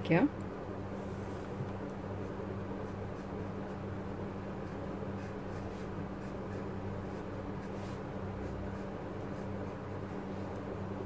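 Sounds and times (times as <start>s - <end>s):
steady low hum: 0.0s - 11.0s
pencil scratching on paper: 2.2s - 9.9s.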